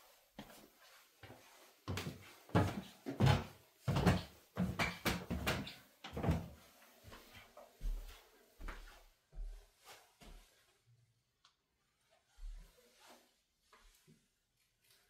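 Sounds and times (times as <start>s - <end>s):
footsteps on wooden floor: 0.4s - 10.6s.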